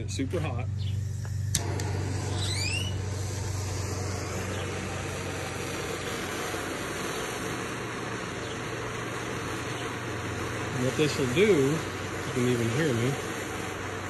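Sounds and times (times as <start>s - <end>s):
propane torch hissing: 0.0s - 14.0s.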